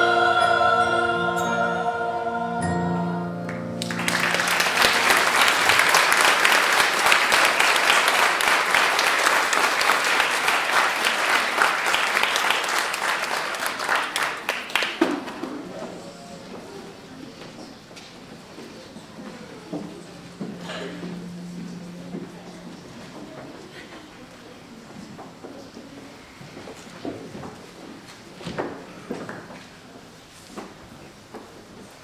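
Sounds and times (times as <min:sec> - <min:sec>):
choir singing with piano: 0:00.0 - 0:06.9
audience applause: 0:03.5 - 0:15.4.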